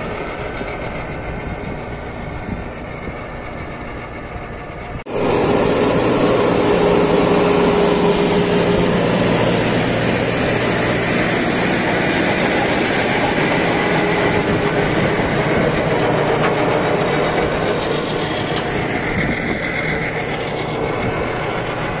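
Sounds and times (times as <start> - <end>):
tractor engine drone: 0.0 - 22.0
power harrow tines clattering: 5.1 - 22.0.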